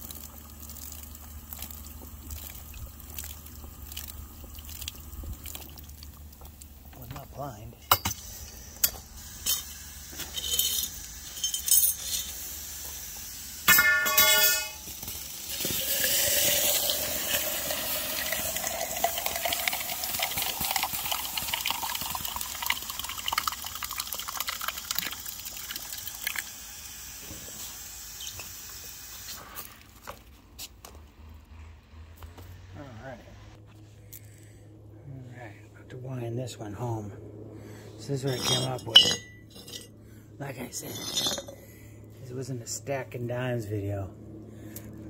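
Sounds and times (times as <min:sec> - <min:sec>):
hot metal quenched sizzling: 0:07.9 - 0:22.4, 0:25.8 - 0:29.6.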